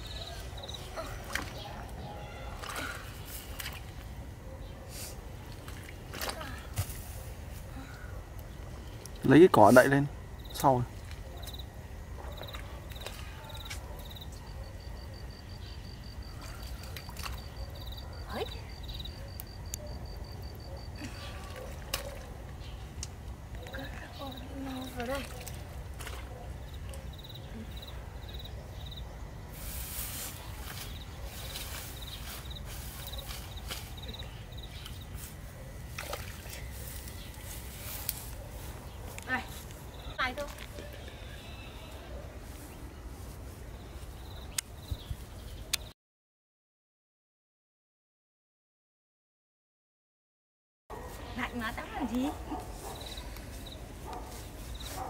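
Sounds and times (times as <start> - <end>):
insects chirping in trills: 8.2 - 21.1, 26.5 - 42.0, 43.7 - 45.1, 51.4 - 55.0
grass rustling as pulled by hand: 29.5 - 34.2, 34.8 - 40.6, 52.6 - 55.0.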